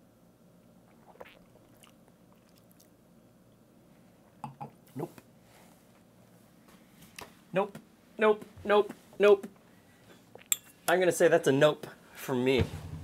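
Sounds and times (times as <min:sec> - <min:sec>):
people sipping a drink: 0:00.8 - 0:02.9.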